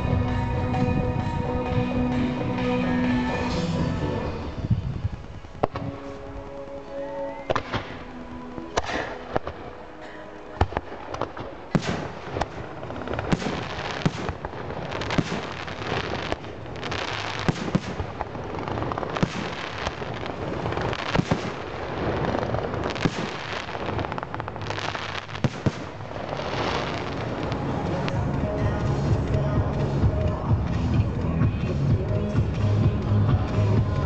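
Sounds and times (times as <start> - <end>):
fireworks crackle: 2.2 - 34.0
fireworks bangs: 4.3 - 6.6, 7.4 - 30.8.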